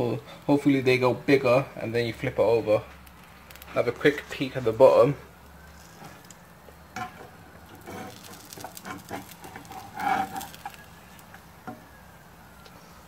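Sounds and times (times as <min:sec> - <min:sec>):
spatula scraping frying pan: 0:06.9 - 0:11.3.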